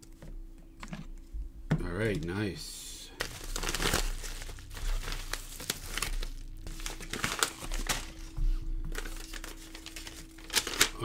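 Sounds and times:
padded mailer crinkling: 0:03.1 - 0:11.0.

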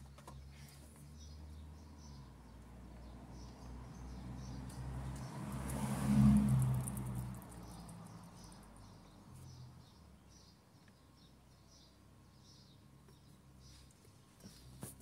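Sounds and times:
small birds chirping: 0:00.0 - 0:15.0
vehicle passing: 0:01.1 - 0:10.0.

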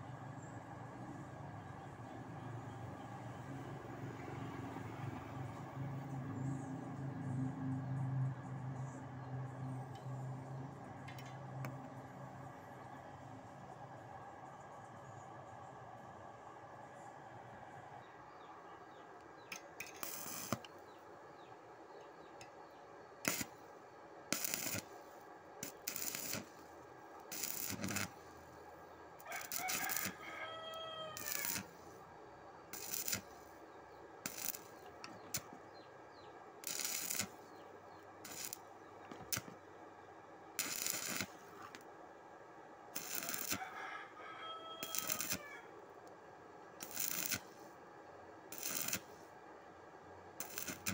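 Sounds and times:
arc welding bursts: 0:19.8 - 0:20.7, 0:23.2 - 0:23.6, 0:24.3 - 0:25.0, 0:25.6 - 0:26.6, 0:27.3 - 0:28.3, 0:29.3 - 0:30.3, 0:31.2 - 0:31.8, 0:32.7 - 0:33.6, 0:34.2 - 0:35.5, 0:36.6 - 0:37.6, 0:38.2 - 0:39.5, 0:40.6 - 0:41.6, 0:43.0 - 0:43.8, 0:44.8 - 0:45.5, 0:46.8 - 0:47.7, 0:48.5 - 0:49.2, 0:50.4 - 0:50.9.

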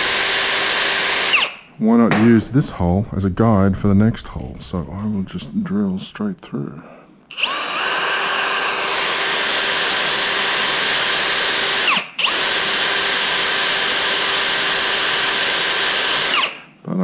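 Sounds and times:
power drill boring through metal: 0:00.0 - 0:01.6, 0:07.3 - 0:16.7.

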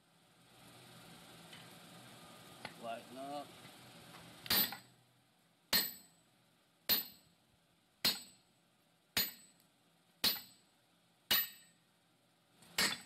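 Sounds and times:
sledgehammer striking metal tool: 0:04.5 - 0:04.9, 0:05.7 - 0:06.2, 0:06.9 - 0:07.3, 0:08.0 - 0:08.4, 0:09.2 - 0:09.6, 0:10.2 - 0:10.6, 0:11.3 - 0:11.8, 0:12.8 - 0:13.0.

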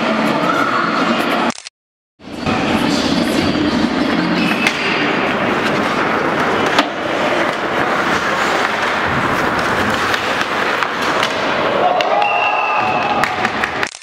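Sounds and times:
skate blades scraping ice: 0:04.1 - 0:12.2
hockey sticks clacking: 0:04.4 - 0:14.0.

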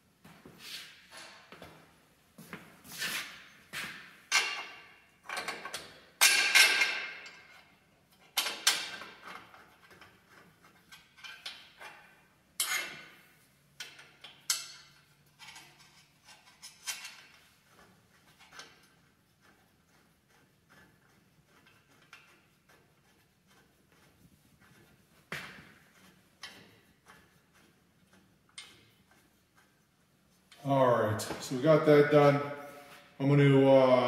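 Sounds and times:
metal-on-metal clinks and knocks: 0:04.3 - 0:13.2, 0:13.8 - 0:19.0.

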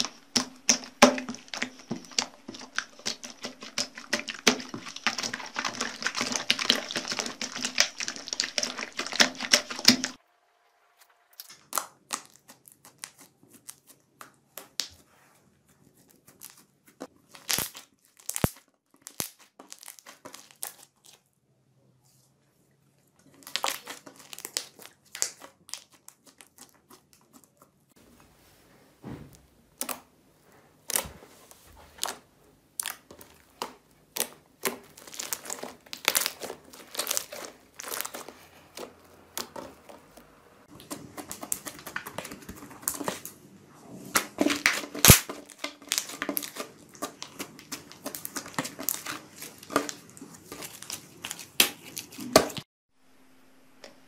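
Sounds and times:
slime crackling and popping: 0:00.0 - 0:10.2, 0:11.4 - 0:14.9, 0:17.3 - 0:21.3, 0:23.3 - 0:27.5, 0:32.0 - 0:43.4, 0:44.1 - 0:52.6.

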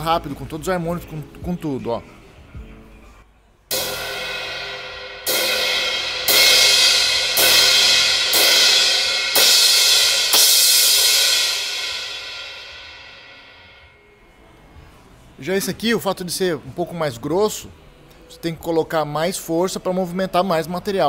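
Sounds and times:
crash cymbal struck with drumstick: 0:03.7 - 0:14.2.

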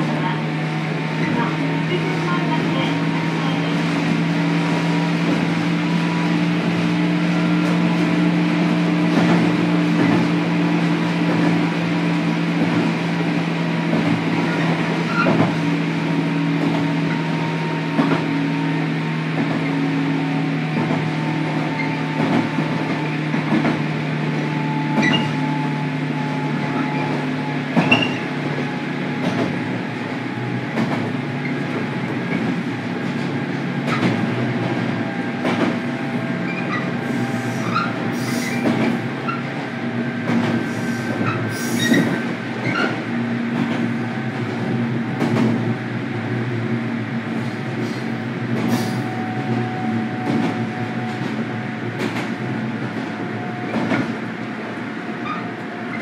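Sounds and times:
train motor hum: 0:00.0 - 0:56.0
high wheel squeals: 0:24.5 - 0:28.3, 0:36.3 - 0:39.5, 0:40.6 - 0:43.0.

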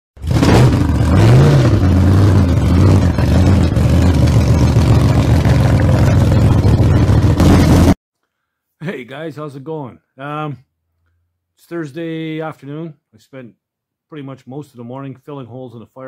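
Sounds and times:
engine revving and rumbling: 0:00.2 - 0:08.0.

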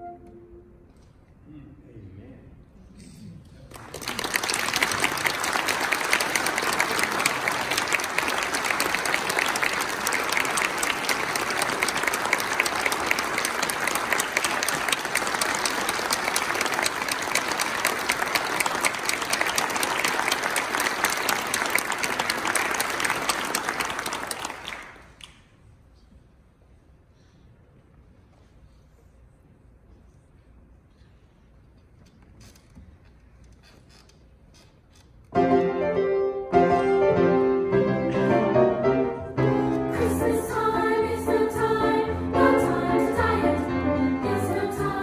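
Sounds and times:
audience applauding: 0:03.7 - 0:25.4.

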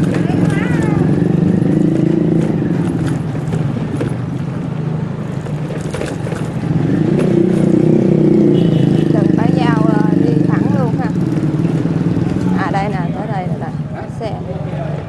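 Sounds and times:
motorbike engine running: 0:00.0 - 0:13.7
street traffic: 0:00.0 - 0:15.0
clicks and rattles: 0:05.2 - 0:07.7.

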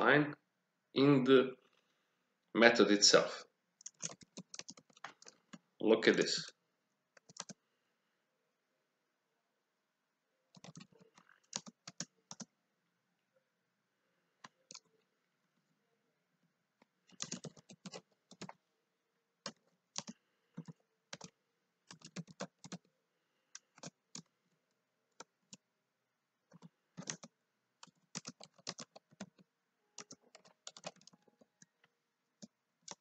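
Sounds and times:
keyboard typing clicks: 0:03.8 - 0:05.6, 0:07.2 - 0:07.6, 0:10.5 - 0:12.5, 0:14.4 - 0:14.9, 0:17.1 - 0:18.6, 0:19.4 - 0:22.9, 0:23.6 - 0:24.3, 0:26.5 - 0:29.4, 0:30.0 - 0:31.8.

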